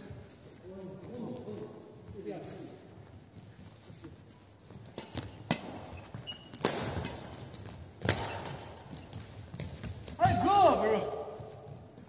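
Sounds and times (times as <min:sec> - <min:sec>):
court shoes squeaking: 0:00.0 - 0:12.0
racket hitting shuttlecock: 0:04.8 - 0:10.0.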